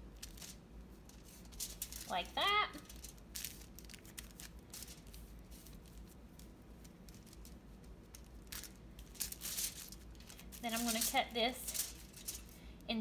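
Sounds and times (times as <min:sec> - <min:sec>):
aluminum foil crinkling: 0:00.0 - 0:13.0.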